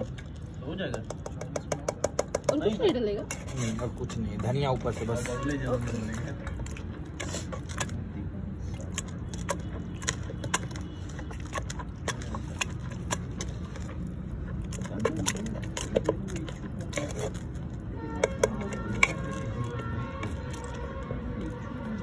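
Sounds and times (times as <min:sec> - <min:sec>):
utensils tapping metal bowl: 0:00.9 - 0:03.6, 0:18.1 - 0:20.7.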